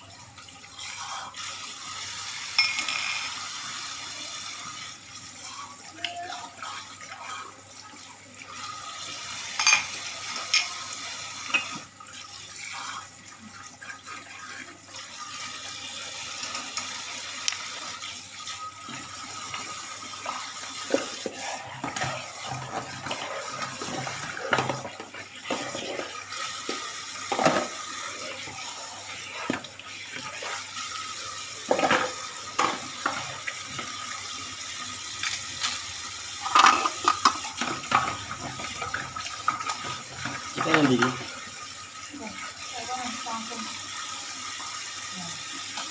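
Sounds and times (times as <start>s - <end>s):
dishes being scrubbed: 0.7s - 7.6s, 8.4s - 34.2s, 35.2s - 41.6s
dishes clinking: 2.5s - 3.4s, 9.5s - 10.8s, 11.5s - 11.8s, 36.4s - 38.8s.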